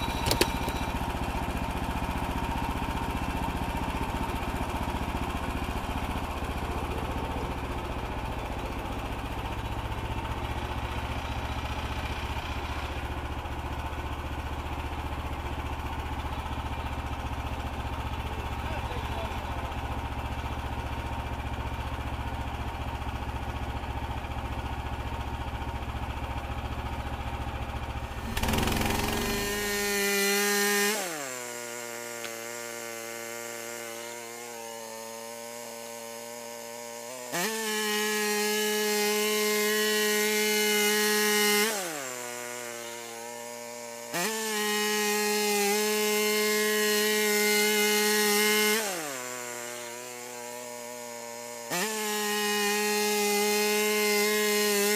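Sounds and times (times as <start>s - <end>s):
band blade cutting wood: 0.0s - 14.0s, 28.0s - 54.9s
sawmill gas engine revving: 0.0s - 54.9s.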